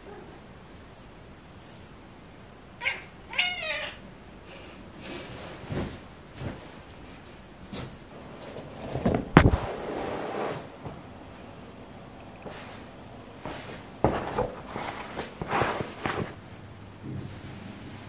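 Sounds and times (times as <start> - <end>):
cat meowing and chirping: 2.8 - 4.0.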